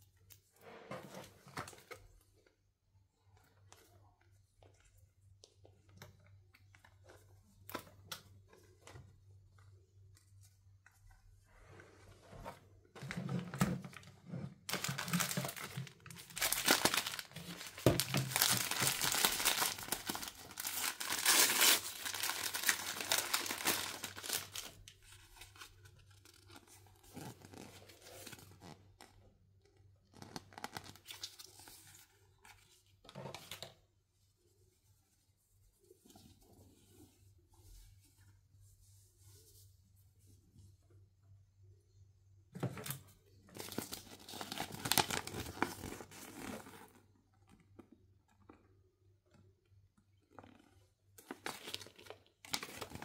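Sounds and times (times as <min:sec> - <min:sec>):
plastic pouch crinkling and tearing: 0:14.7 - 0:28.7, 0:43.5 - 0:46.8.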